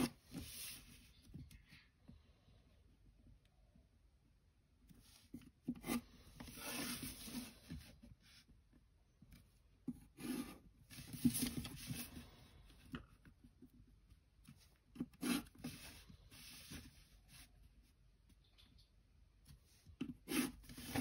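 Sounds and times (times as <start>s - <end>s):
pencil scratching on paper: 0.0s - 0.9s, 5.6s - 7.5s, 9.9s - 12.2s, 14.9s - 17.5s, 20.0s - 21.0s.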